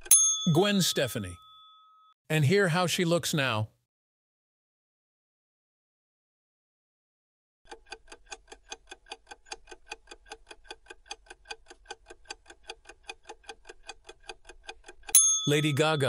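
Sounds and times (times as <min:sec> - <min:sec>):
clock ticking: 0:07.7 - 0:16.0.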